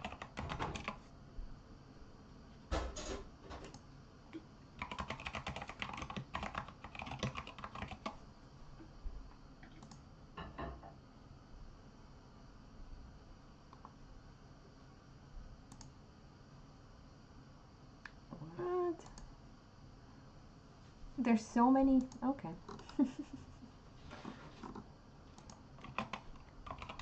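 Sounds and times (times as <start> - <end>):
keyboard typing: 0.0 - 1.0, 4.8 - 8.2, 9.6 - 10.0, 24.6 - 27.0.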